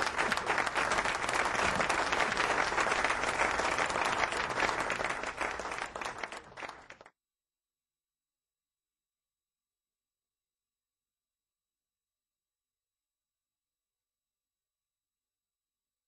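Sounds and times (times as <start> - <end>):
audience applauding: 0.0 - 7.1.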